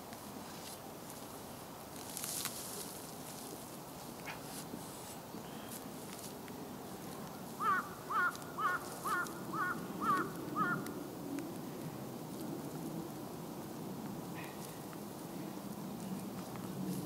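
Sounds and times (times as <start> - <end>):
crow cawing: 7.6 - 10.9.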